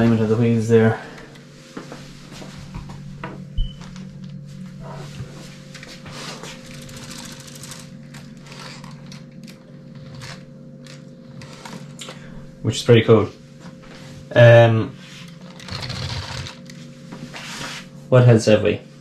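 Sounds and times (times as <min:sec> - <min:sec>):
steady low hum: 0:00.0 - 0:19.0
plastic parts clicking and rattling: 0:06.8 - 0:12.0.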